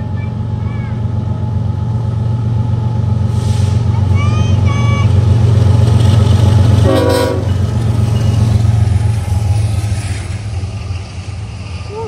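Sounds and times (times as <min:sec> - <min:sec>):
diesel locomotive engines: 0:00.0 - 0:12.0
rail cars rolling: 0:00.0 - 0:12.0
train horn toot: 0:06.8 - 0:07.6.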